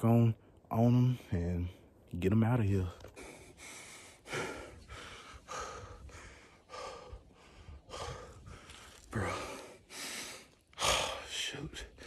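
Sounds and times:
man breathing hard: 3.1s - 12.0s.

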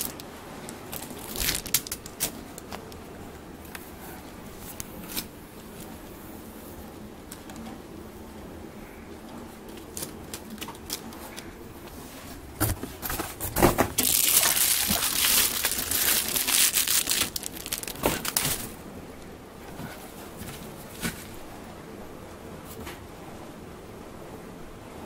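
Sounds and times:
plastic bag crinkling: 0.0s - 3.0s, 9.7s - 11.4s, 13.8s - 18.8s.

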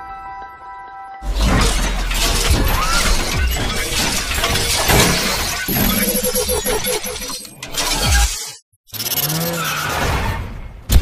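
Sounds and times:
glass shattering crash: 1.2s - 8.4s.

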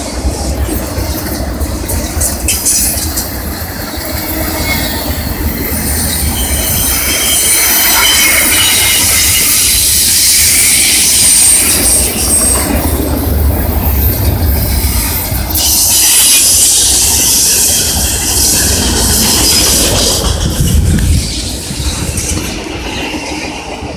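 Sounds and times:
freight train rumble: 0.0s - 23.9s
wheel flange squeal: 2.2s - 23.6s.

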